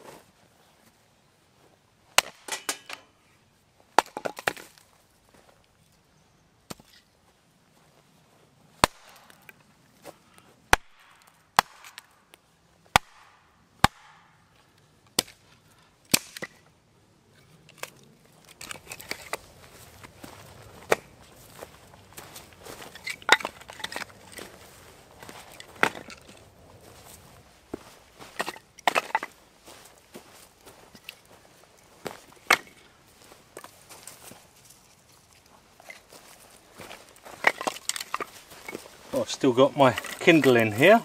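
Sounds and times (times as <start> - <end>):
hatchet chopping wood: 2.2 - 3.1, 4.0 - 4.6, 8.8 - 9.4, 10.7 - 12.1, 12.9 - 14.4, 15.2 - 15.4, 16.1 - 16.6, 25.7 - 26.3.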